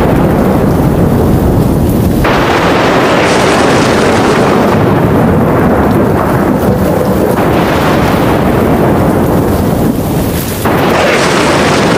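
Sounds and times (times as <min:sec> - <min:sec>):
rain: 0:00.0 - 0:11.9
rumbling thunder: 0:00.0 - 0:11.9
sharp thunder crack: 0:00.0 - 0:11.9.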